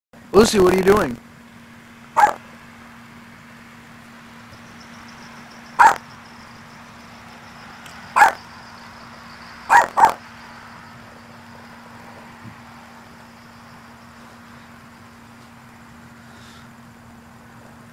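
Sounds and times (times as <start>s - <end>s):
faint steady hum: 0.2s - 17.9s
small dog barking: 2.2s - 2.4s, 5.8s - 6.1s, 8.2s - 8.4s, 9.7s - 10.2s.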